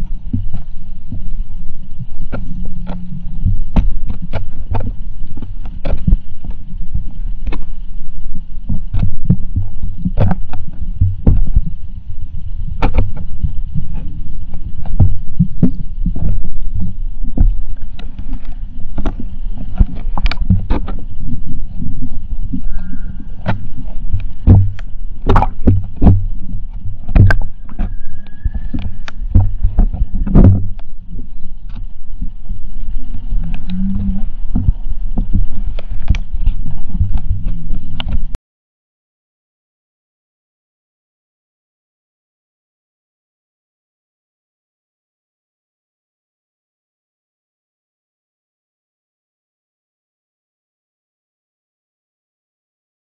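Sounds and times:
muffled underwater rumble: 0.0 - 38.4
sharp clicks and knocks: 23.4 - 27.9, 28.7 - 30.9.

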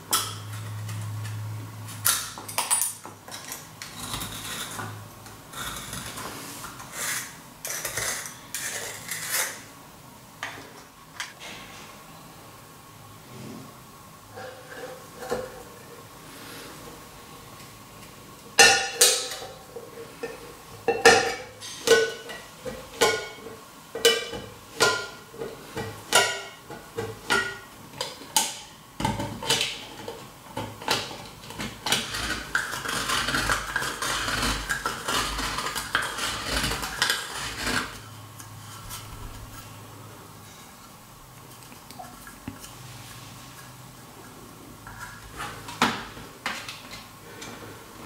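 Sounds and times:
can opener grating metal: 3.8 - 9.7, 30.8 - 39.3.

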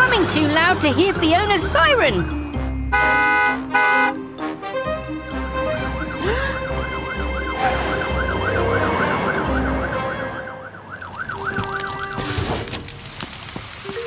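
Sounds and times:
background music: 0.0 - 12.5
cartoon siren wailing: 7.5 - 12.2.

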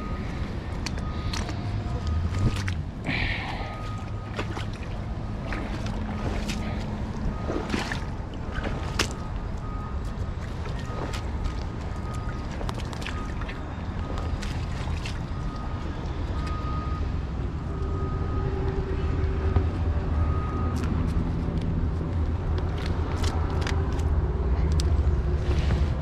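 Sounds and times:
passing engines: 0.0 - 26.0
road traffic rumble: 0.0 - 26.0.

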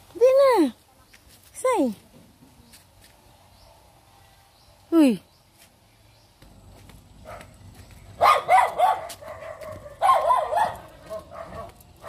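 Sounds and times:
dog barking: 7.2 - 7.6, 8.2 - 12.0.

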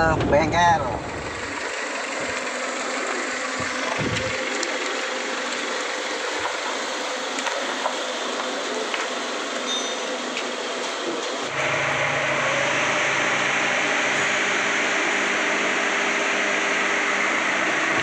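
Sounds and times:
car engine running: 0.0 - 18.0
road and tyre noise: 0.0 - 18.0.

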